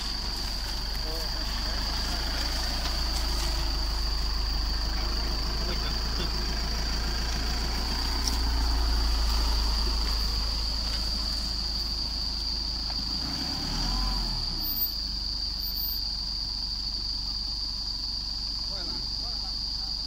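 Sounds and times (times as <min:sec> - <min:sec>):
diesel engine at low revs: 0:00.0 - 0:20.0.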